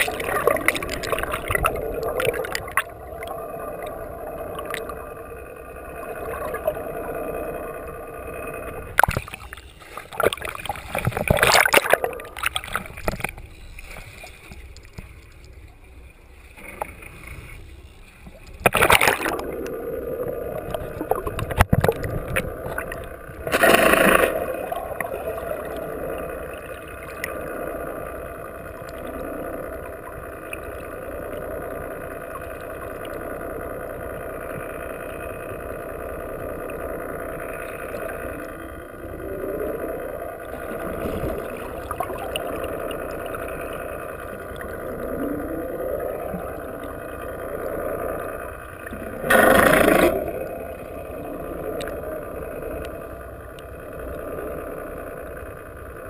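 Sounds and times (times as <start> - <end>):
water washing along hull: 0.0 - 5.2, 8.9 - 15.2.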